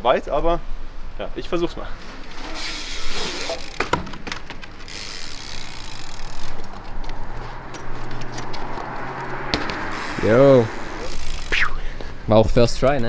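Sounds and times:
bike landing thump: 3.4s - 4.8s, 9.5s - 9.8s
bike tyres knocking on wooden boards: 3.7s - 4.9s, 7.6s - 9.9s.

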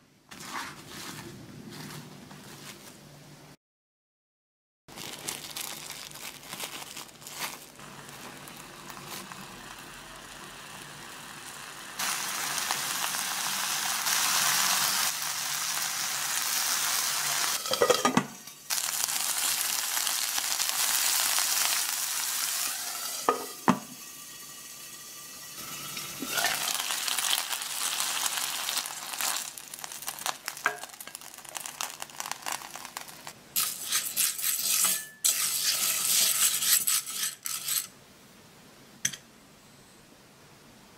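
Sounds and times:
plastic wrap crinkling: 4.9s - 10.0s, 18.7s - 22.8s, 26.3s - 34.6s
meat patties sizzling in oil: 7.1s - 36.6s.

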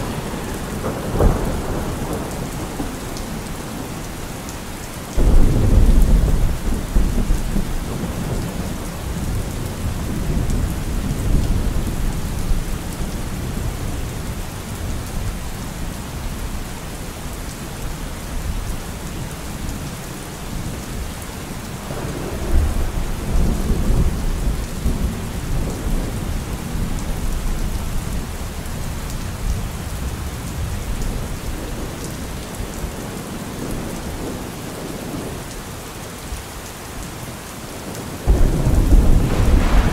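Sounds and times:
thunder rumbling: 0.0s - 4.2s, 5.2s - 15.0s, 21.8s - 28.3s, 37.9s - 39.9s
steady rain falling: 0.0s - 39.9s.

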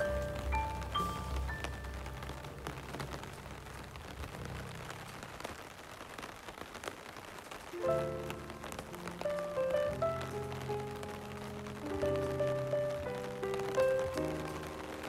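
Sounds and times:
soft background music: 0.0s - 5.6s, 7.8s - 15.0s
rain on pavement and puddles: 0.0s - 15.0s.

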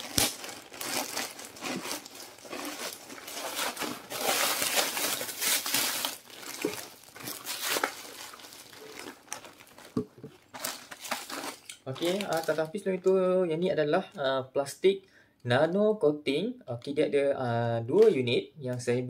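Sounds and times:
plastic mailer crinkling: 0.0s - 13.0s.

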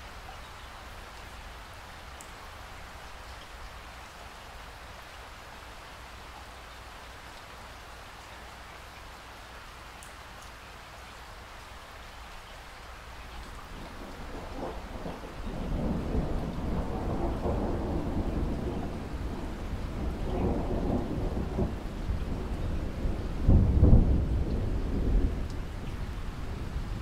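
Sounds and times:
rain hiss: 0.0s - 27.0s
thunder rumbling: 13.6s - 27.0s.

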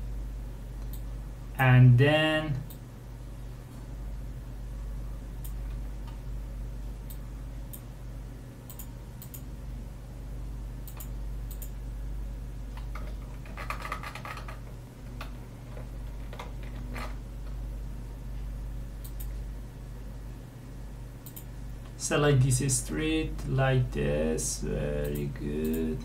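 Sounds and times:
low electrical hum: 0.0s - 26.0s
mouse clicks: 10.9s - 11.8s, 19.0s - 19.4s, 21.2s - 21.5s
keyboard keystrokes: 12.7s - 17.2s.

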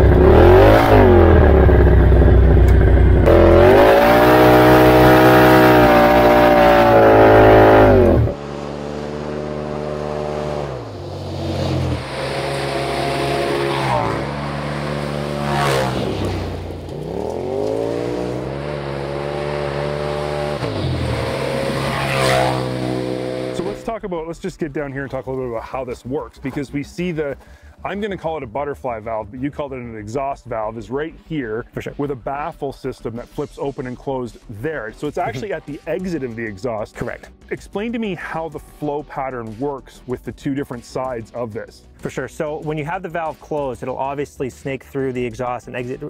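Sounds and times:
engine revving: 0.0s - 23.9s
vehicle accelerating on gravel: 0.0s - 23.9s.

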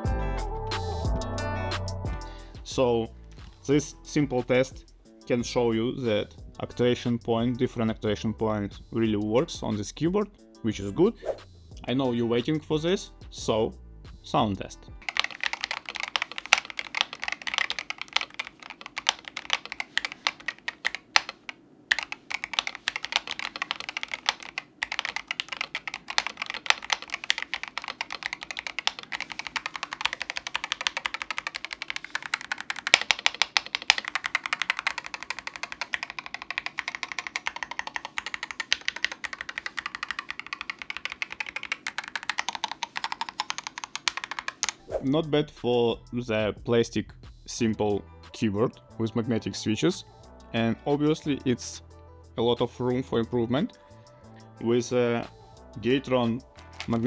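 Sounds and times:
mechanical keyboard typing: 15.0s - 44.9s.

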